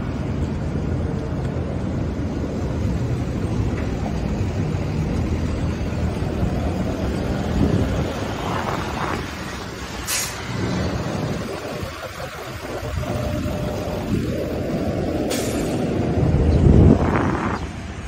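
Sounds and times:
traffic rumble: 0.0 - 18.0
short sharp hiss: 10.0 - 10.5, 15.3 - 15.9.

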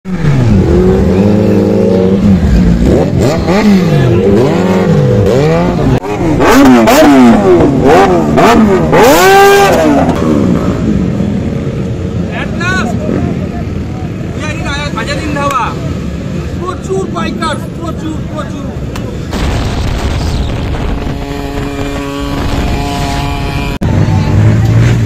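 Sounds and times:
motorcycle engine revving: 0.1 - 12.3, 19.2 - 25.0.

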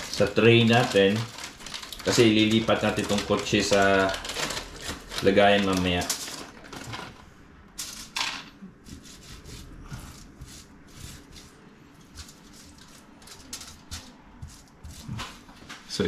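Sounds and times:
hands crumbling dried herbs: 0.0 - 7.0
plastic bag crinkling: 0.0 - 8.2.

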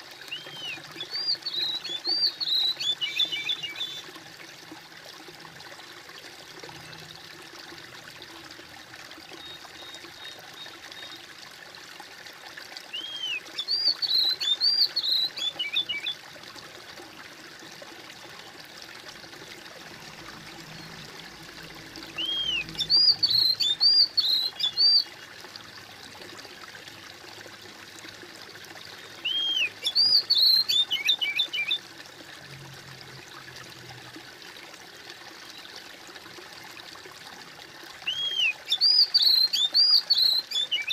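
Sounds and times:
stream water trickling: 0.0 - 40.9
songbird singing: 0.2 - 4.1, 9.3 - 11.2, 12.9 - 16.2, 22.0 - 25.1, 29.0 - 31.8, 38.0 - 40.9.

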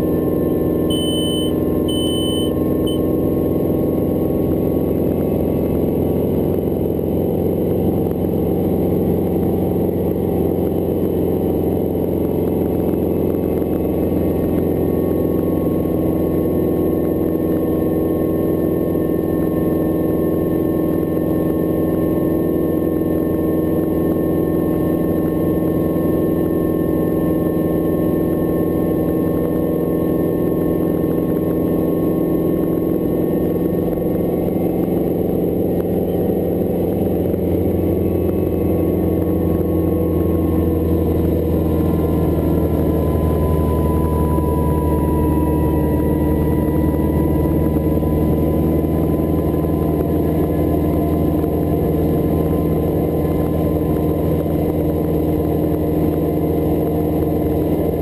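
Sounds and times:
helicopter engine and rotors: 0.0 - 58.0
short high beeps: 0.9 - 3.1.

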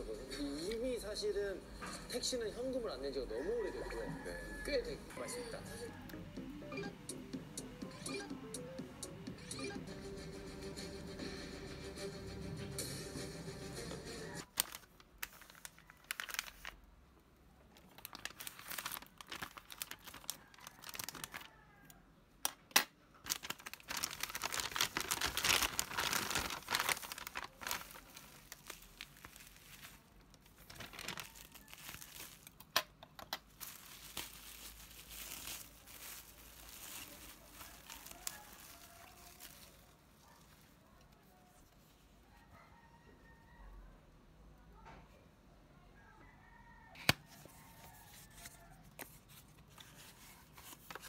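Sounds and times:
plastic bag crinkling: 14.4 - 16.9, 17.6 - 21.6, 23.1 - 40.8, 49.8 - 51.0
plastic tearing: 14.4 - 16.9, 17.7 - 21.6, 22.4 - 40.6, 48.5 - 51.0.

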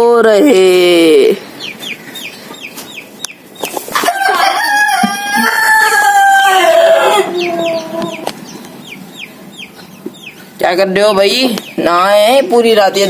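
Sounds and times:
ducklings peeping: 0.4 - 13.0
rooster crowing: 3.9 - 8.3.

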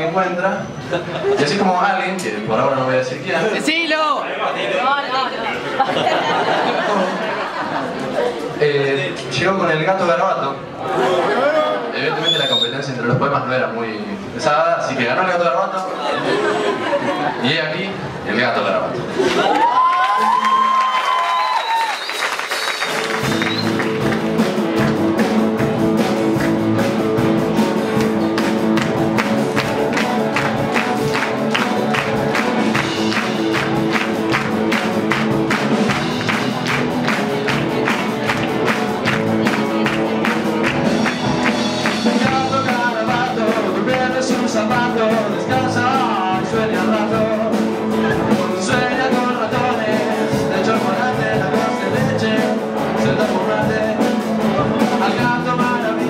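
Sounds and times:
rock band playing: 19.8 - 56.0
person singing: 41.8 - 56.0.

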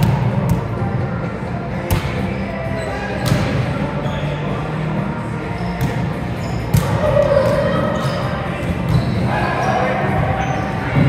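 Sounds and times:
players' voices: 0.0 - 11.0.

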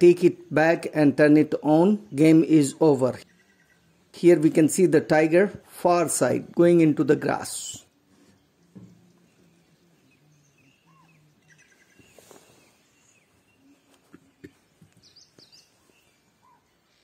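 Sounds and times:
bird chirps and calls: 7.8 - 17.0.

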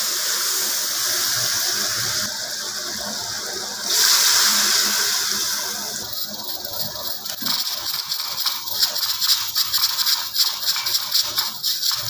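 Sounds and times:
watery hiss from pot: 3.8 - 12.0.

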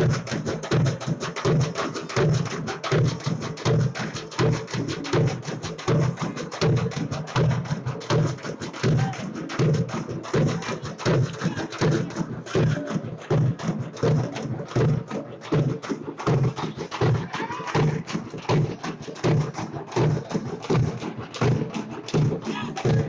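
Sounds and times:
drums beating driving rhythm: 0.0 - 23.0.

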